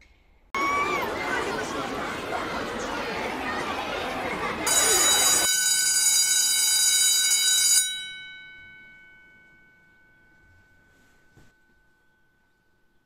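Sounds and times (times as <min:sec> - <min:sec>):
electric school bell ringing: 0:04.6 - 0:12.6.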